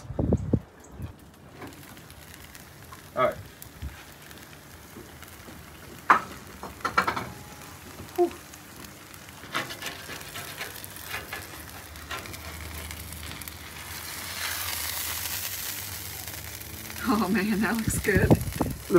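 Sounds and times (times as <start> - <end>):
meat sizzling on a griddle: 1.2 - 18.9
spatula sliding on griddle: 9.3 - 17.0.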